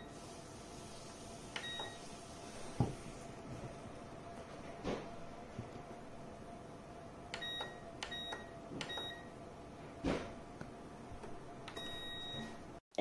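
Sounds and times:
heater fan running: 0.0s - 12.8s.

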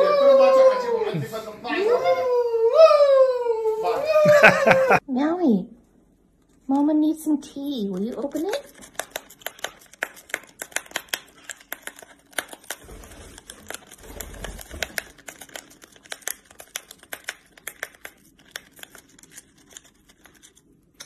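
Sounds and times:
bird beak tearing paper: 7.8s - 21.0s.

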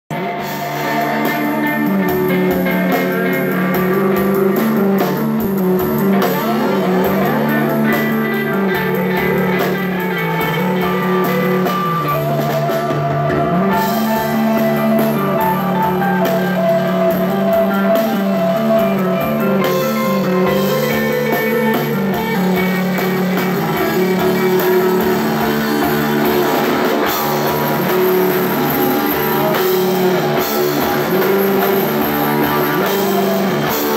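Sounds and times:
bass guitar: 0.0s - 33.9s
distorted electric guitar: 0.1s - 33.9s
drum kit with crashing cymbals: 0.1s - 33.9s.

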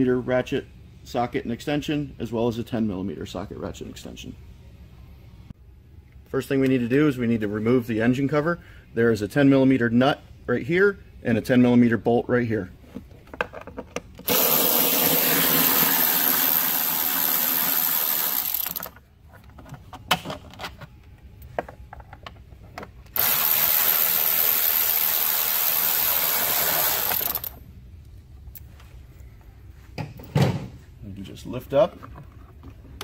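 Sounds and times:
electric ratchet running: 14.3s - 19.0s, 23.2s - 27.6s
tool and fasteners clicking: 18.3s - 19.0s.

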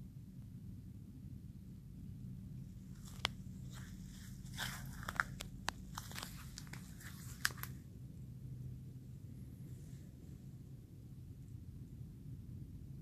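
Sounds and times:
faint low hum: 0.0s - 13.0s
dry leaves and twigs crackling: 2.8s - 7.8s
twigs snapping: 3.0s - 3.9s, 4.5s - 7.8s.

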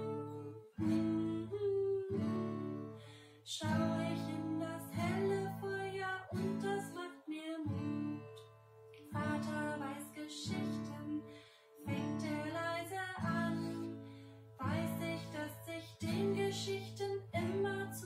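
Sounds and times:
acoustic guitar strumming: 0.0s - 7.1s
woman singing: 0.0s - 8.4s, 9.0s - 18.0s.

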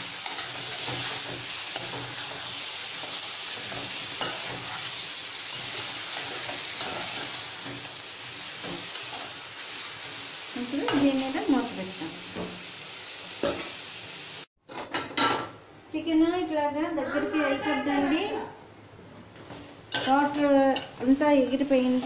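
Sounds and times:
chicken sizzling in a pot: 0.0s - 14.5s, 19.9s - 22.0s.

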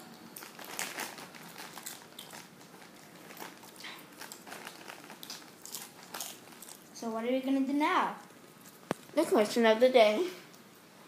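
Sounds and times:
popcorn being chewed: 0.0s - 7.0s, 8.1s - 9.2s.

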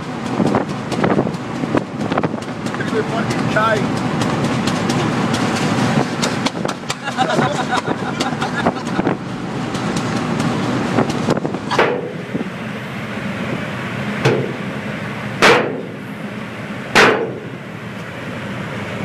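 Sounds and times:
road and engine noise in a vehicle: 0.0s - 19.0s
sharp knocks: 14.2s - 14.6s, 15.4s - 15.9s, 16.9s - 17.5s.

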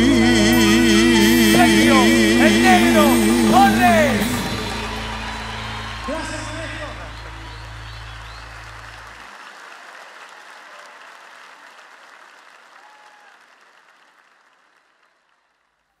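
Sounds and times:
deep steady tone: 0.0s - 9.2s
audience applauding and cheering: 1.2s - 15.9s.

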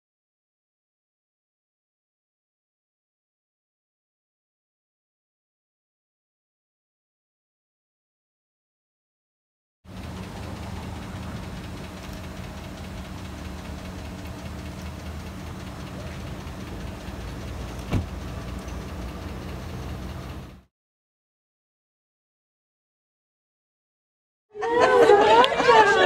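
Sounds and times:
vehicle engine idling: 9.9s - 20.7s.

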